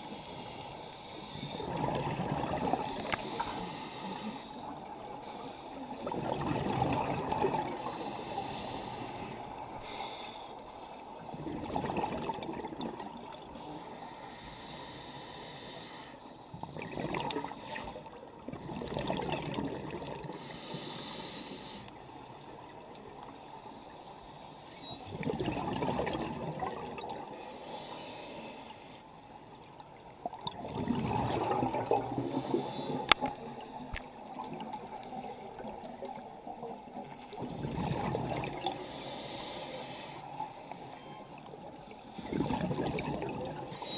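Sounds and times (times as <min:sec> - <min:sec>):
underwater wash: 0:00.0 - 0:43.9
scuba regulator bubbly exhalations: 0:01.5 - 0:03.5, 0:06.0 - 0:08.1, 0:11.3 - 0:13.3, 0:16.6 - 0:20.4, 0:25.1 - 0:27.2, 0:30.3 - 0:33.2, 0:37.4 - 0:38.8, 0:42.2 - 0:43.7.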